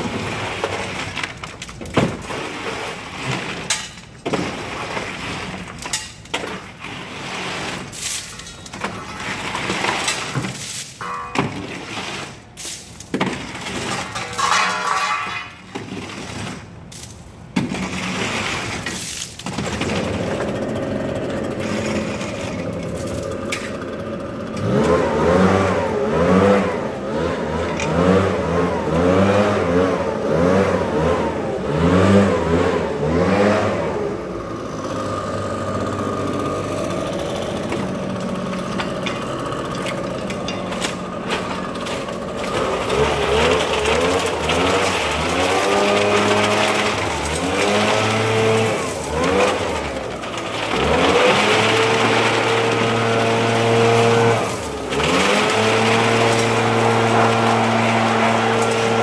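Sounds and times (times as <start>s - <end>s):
leaf blower engine revving: 20.1s - 40.3s, 42.1s - 59.0s.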